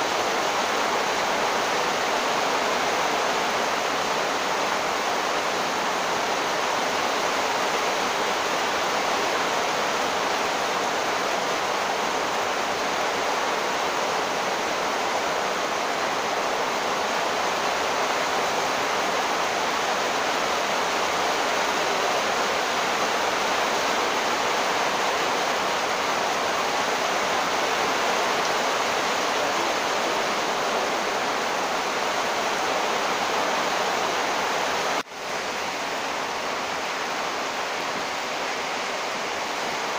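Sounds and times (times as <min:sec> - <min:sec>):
torrential rain: 0:00.0 - 0:39.9.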